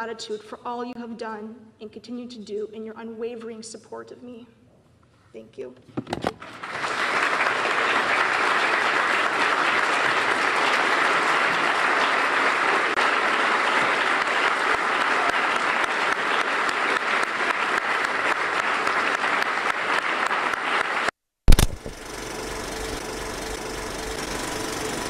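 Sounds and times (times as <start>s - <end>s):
congregation applauding: 6.4s - 21.8s
loud burst: 21.5s - 25.0s.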